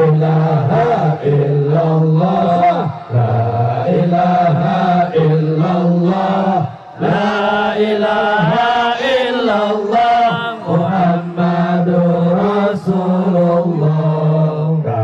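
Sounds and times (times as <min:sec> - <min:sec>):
men chanting in unison: 0:00.0 - 0:15.0.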